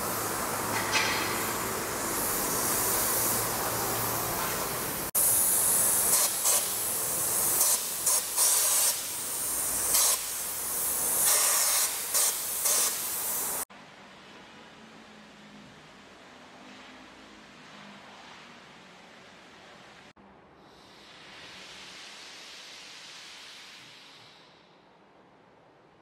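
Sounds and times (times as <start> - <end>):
paint spray gun hissing: 0.0 - 13.7.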